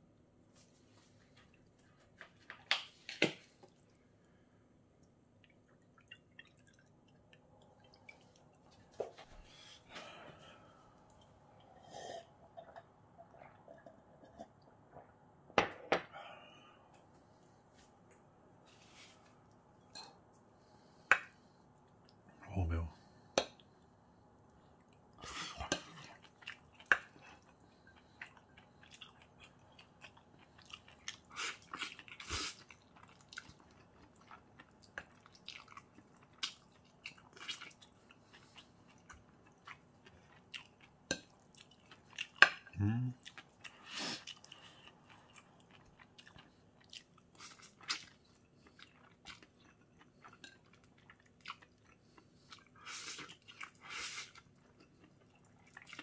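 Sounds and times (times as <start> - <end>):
chewing and slurping: 24.8 - 56.0.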